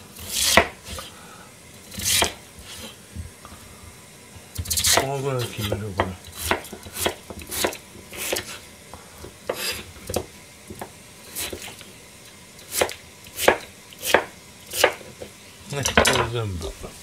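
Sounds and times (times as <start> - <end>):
knife chopping on cutting board: 0.2 - 1.0, 2.0 - 2.4, 4.7 - 8.6, 12.7 - 15.1.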